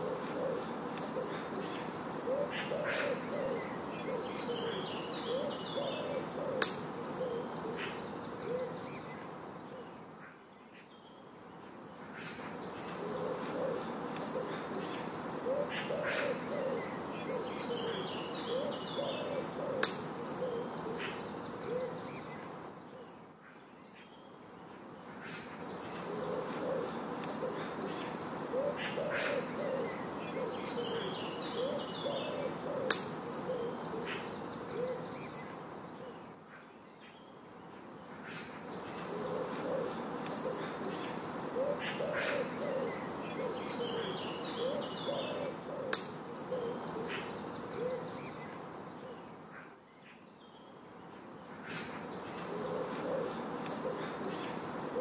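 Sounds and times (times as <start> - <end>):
low bird calls: 0.0 - 55.0
sharp click: 19.8 - 20.0.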